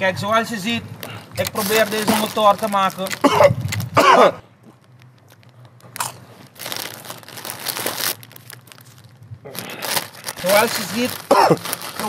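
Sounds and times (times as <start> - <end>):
crisp bag crinkling: 1.0 - 4.0, 4.6 - 12.0
crunchy bites of chips: 1.0 - 12.0.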